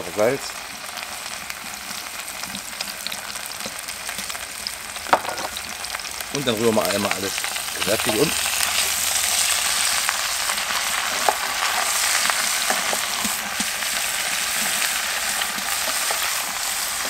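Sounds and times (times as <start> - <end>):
oil sizzling: 0.0 - 17.0.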